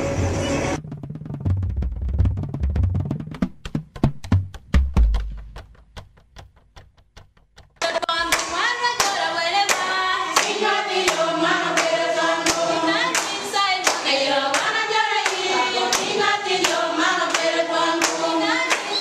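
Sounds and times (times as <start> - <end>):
hand clapping: 3.4 - 18.9
women singing together: 7.8 - 19.0.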